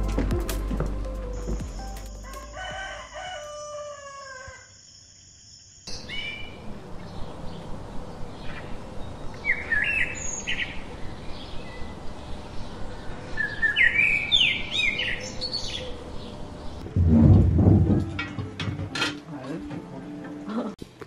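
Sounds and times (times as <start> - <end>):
songbirds chirping: 4.5 - 16.9
short low rumble: 16.8 - 18.1.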